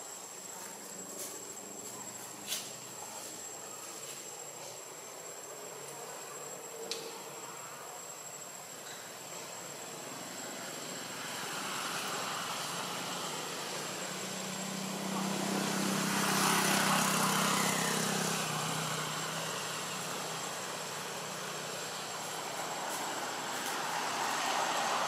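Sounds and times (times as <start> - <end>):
passing engine hum: 9.8 - 25.0.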